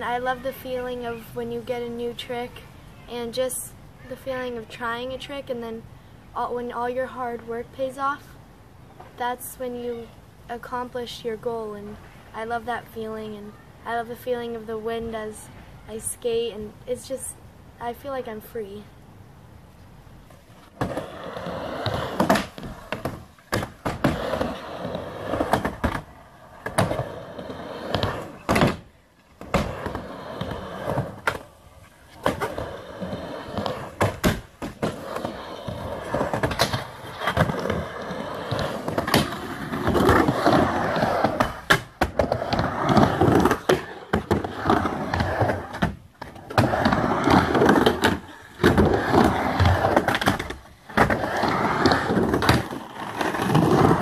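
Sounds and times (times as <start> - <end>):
skateboard wheels rumbling on ramp: 20.4 - 54.0
skateboard clacks and knocks: 20.7 - 31.5, 32.2 - 54.0.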